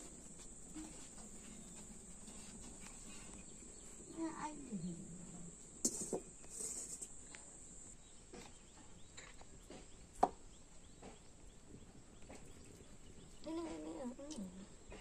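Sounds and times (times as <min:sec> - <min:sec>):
faint high hiss: 0:00.0 - 0:08.0.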